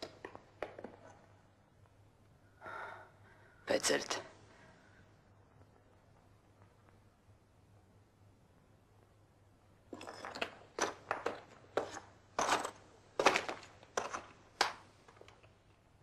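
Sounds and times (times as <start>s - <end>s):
footsteps on rubble: 9.9s - 15.4s.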